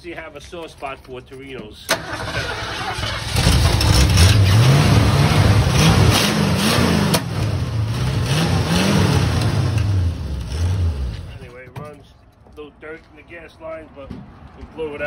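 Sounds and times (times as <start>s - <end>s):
car engine revving: 2.0s - 11.5s.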